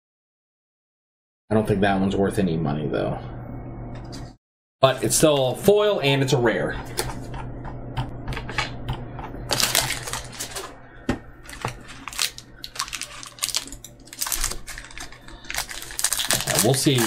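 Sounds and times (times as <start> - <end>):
card rustles: 9.5 - 10.7, 11.4 - 17.0.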